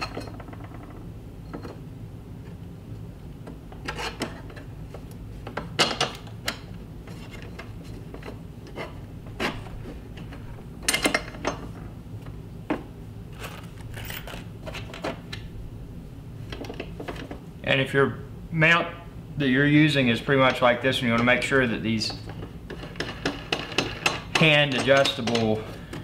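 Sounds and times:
low steady hum: 0.0s - 26.0s
metal brackets clicking and clanking: 20.5s - 25.6s.

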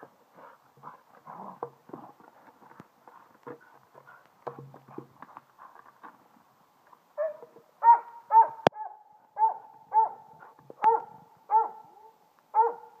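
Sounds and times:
dog barking: 7.2s - 13.0s.

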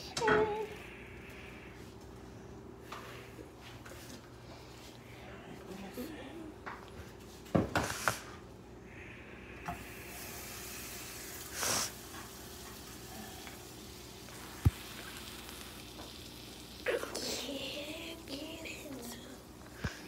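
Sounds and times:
food sizzling in a pan: 9.8s - 20.0s.

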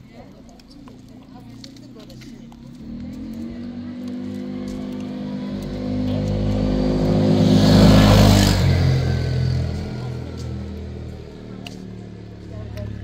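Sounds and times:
vehicle driving past: 2.7s - 13.0s.

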